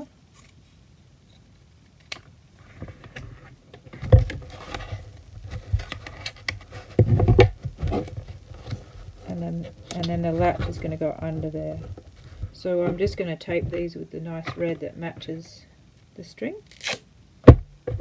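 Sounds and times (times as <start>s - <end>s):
carton crinkling: 2.7s - 15.2s
handling knocks: 6.7s - 15.4s.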